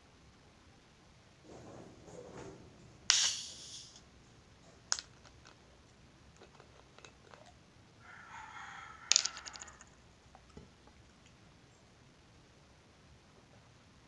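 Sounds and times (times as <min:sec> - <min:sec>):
carbonation gas hiss: 0:02.4 - 0:04.1.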